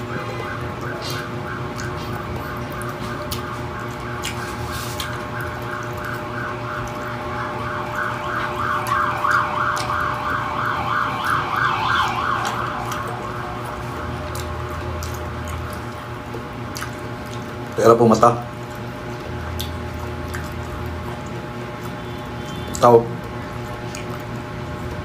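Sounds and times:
emergency siren warbling: 0:00.0 - 0:16.0
eating clicks: 0:00.6 - 0:10.4, 0:12.4 - 0:25.0.

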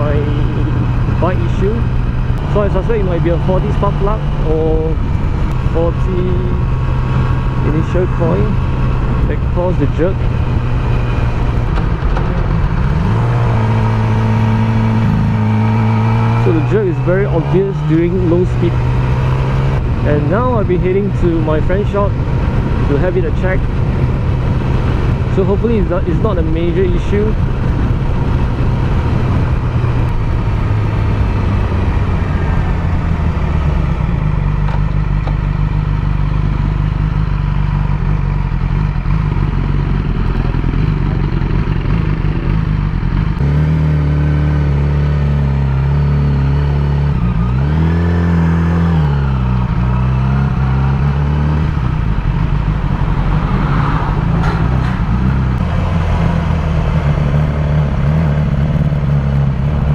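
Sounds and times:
motorcycle engine: 0:00.0 - 0:59.9.

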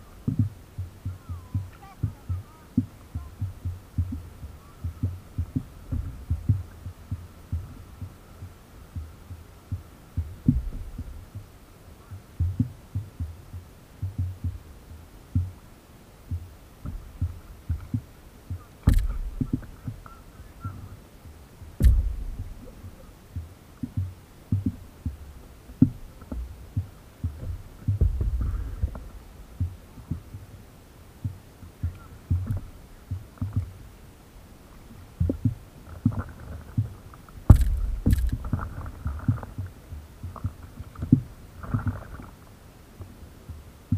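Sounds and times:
water slapping paddleboard: 0:00.0 - 0:43.9
sharp knocks: 0:18.8 - 0:20.0, 0:21.8 - 0:22.7, 0:27.3 - 0:29.8, 0:37.5 - 0:39.4.

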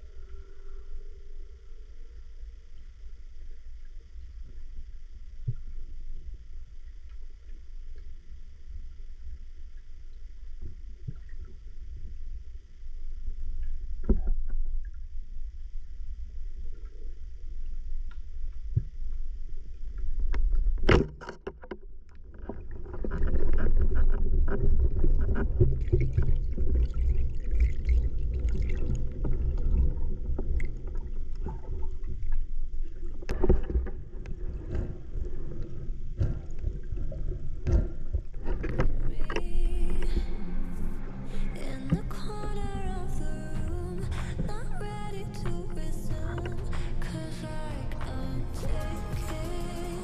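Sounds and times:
underwater rushing and rumbling: 0:00.0 - 0:50.0.

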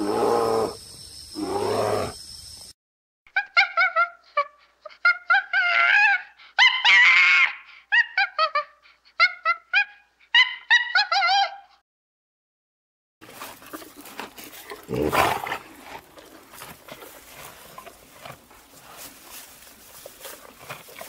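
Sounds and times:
faint ticks and rustles: 0:15.9 - 0:21.0.

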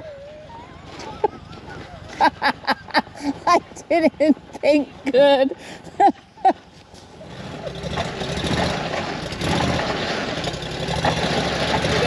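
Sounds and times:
vehicle engine running: 0:05.8 - 0:12.0.

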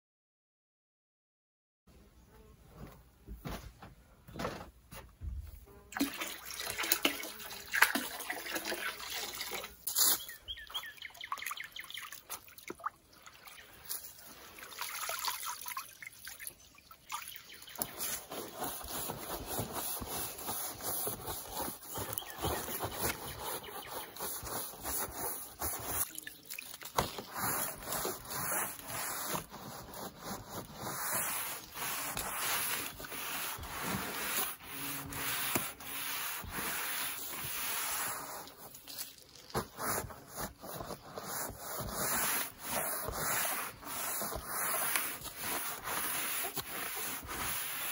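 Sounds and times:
liquid pouring into water: 0:06.0 - 0:09.8, 0:12.1 - 0:17.5
brush scrubbing siding: 0:06.0 - 0:12.7, 0:13.4 - 0:47.9.

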